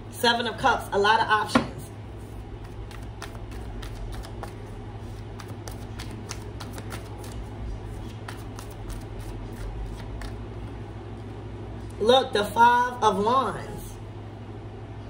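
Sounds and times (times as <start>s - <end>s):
steady low hum: 0.0s - 15.0s
cards being shuffled: 2.2s - 10.4s.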